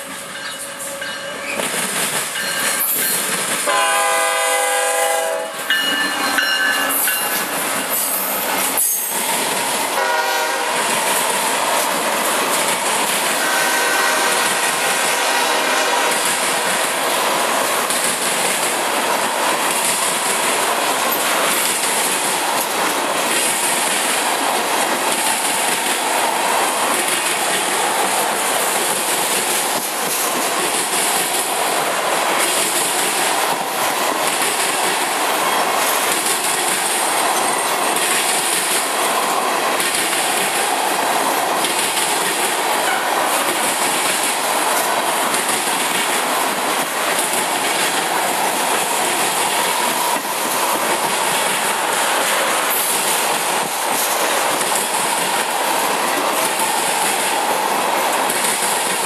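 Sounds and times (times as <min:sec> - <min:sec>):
train wheel and rail noise: 0:00.0 - 0:59.0
locomotive horn blasts: 0:03.7 - 0:05.7, 0:10.0 - 0:10.8, 0:13.4 - 0:16.2
wheels clickety-clack over joints: 0:16.0 - 0:59.0.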